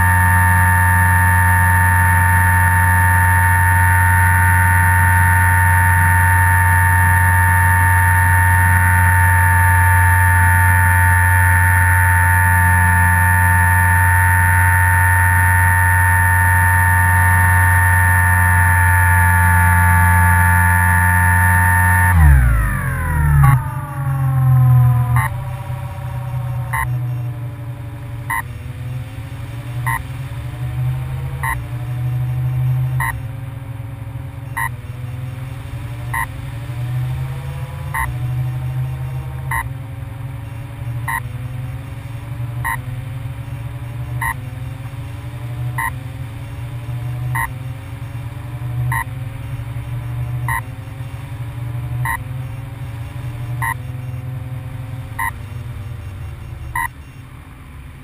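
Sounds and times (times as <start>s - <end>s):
motor warning beeps: 0.0s - 27.6s, 28.2s - 29.0s, 29.8s - 30.1s, 30.7s - 33.4s, 34.3s - 35.5s, 36.1s - 51.3s, 51.9s - 57.4s
steady low rumble: 0.0s - 30.7s
motor whine: 0.0s - 57.5s.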